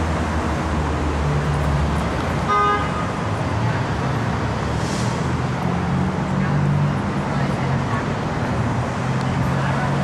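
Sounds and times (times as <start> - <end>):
street traffic: 0.0 - 10.0
car horn toot: 2.5 - 3.1.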